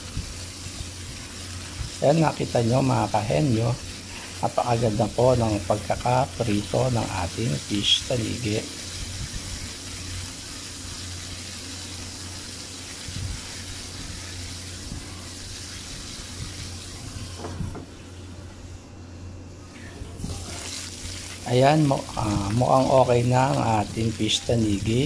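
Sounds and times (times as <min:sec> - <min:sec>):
fish sizzling in oil: 0:00.0 - 0:17.5, 0:20.2 - 0:25.0.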